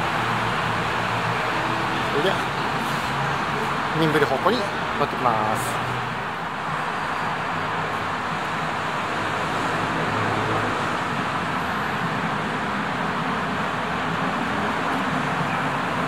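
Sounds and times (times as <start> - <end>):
city traffic hum: 0.0 - 16.0.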